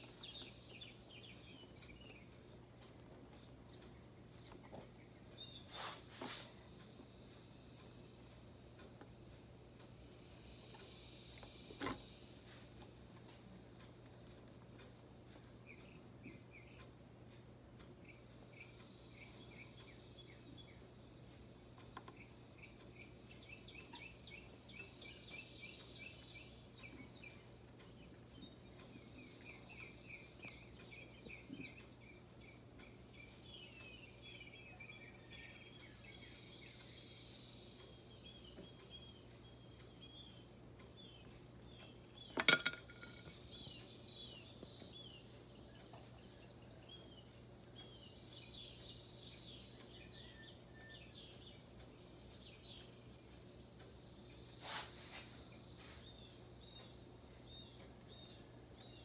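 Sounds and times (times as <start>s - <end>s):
insect chirping: 0.0s - 2.6s, 4.8s - 13.4s, 18.1s - 59.0s
hiss-like insect buzz: 5.7s - 8.2s, 10.0s - 12.8s, 54.1s - 56.1s
glass clink: 42.4s - 43.3s.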